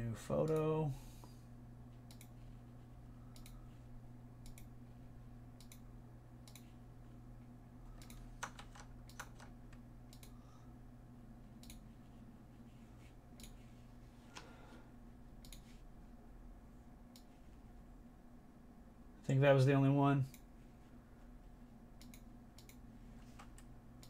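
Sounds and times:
low hum: 0.0s - 24.0s
computer keys clicking: 2.1s - 2.3s, 3.3s - 3.6s, 4.4s - 4.7s, 5.6s - 6.7s, 7.9s - 10.4s, 11.6s - 11.8s, 15.4s - 15.7s, 22.0s - 22.8s.

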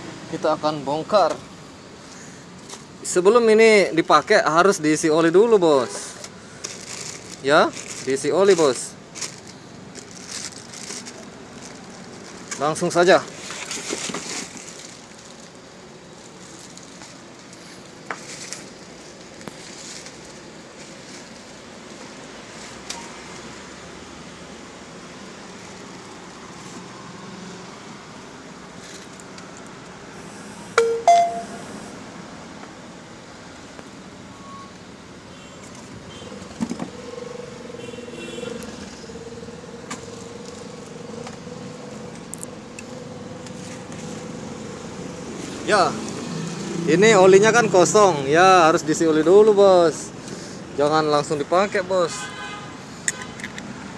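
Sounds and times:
background traffic: 0.0s - 53.9s
packaging knocks and clatters: 6.6s - 15.4s.

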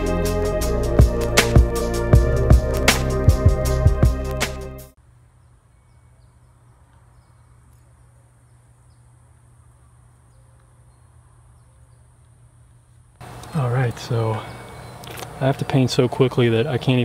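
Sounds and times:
background music: 0.0s - 5.0s
faint insect chirps: 5.1s - 15.4s.

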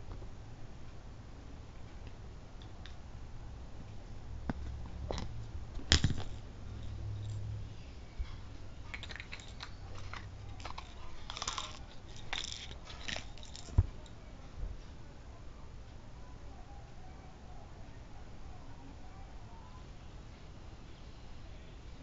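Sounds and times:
handling clicks and rustles: 3.9s - 7.5s, 8.2s - 14.2s.

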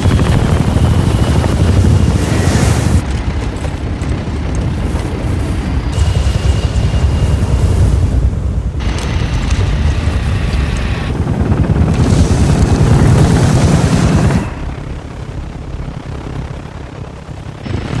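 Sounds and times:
helicopter rotors chopping: 0.0s - 18.0s.

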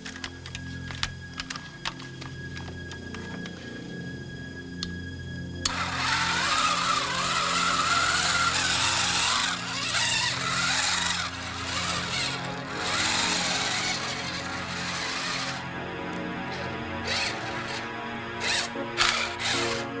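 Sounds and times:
toy tank motor whining: 5.6s - 20.0s.

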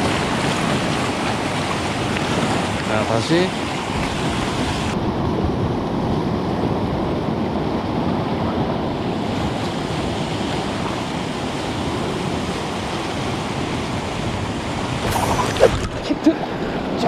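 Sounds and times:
sea surf washing over rocks: 0.0s - 17.0s
wind on microphone: 3.7s - 17.0s.

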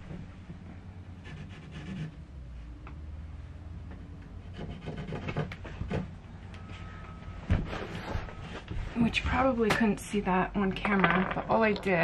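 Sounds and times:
wood board rubbing and knocking: 3.9s - 6.2s.

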